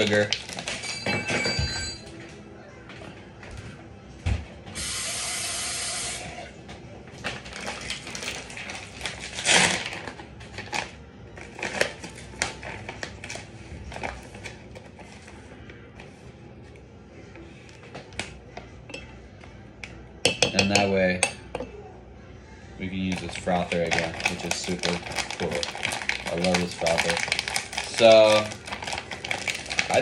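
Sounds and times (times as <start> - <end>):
plastic pouch rustling: 0.0 - 0.8, 7.3 - 15.4, 22.9 - 30.0.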